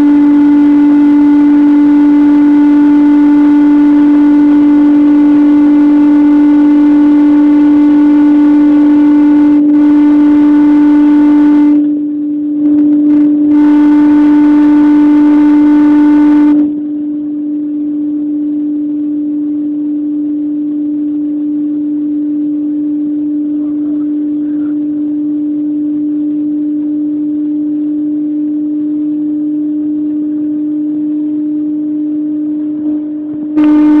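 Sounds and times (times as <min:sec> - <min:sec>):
car engine drone from inside: 0:00.0 - 0:34.0.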